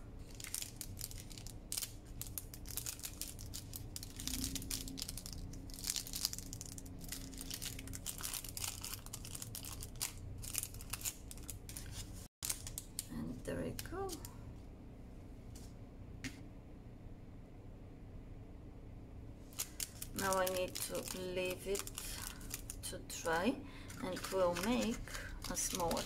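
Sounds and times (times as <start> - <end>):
paper baking cup crinkling: 0.2 - 13.1, 19.5 - 23.2, 23.8 - 26.0.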